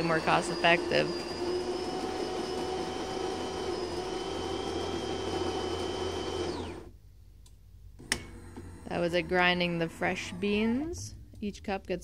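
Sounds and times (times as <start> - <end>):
coffee grinder grinding beans: 0.0 - 6.9.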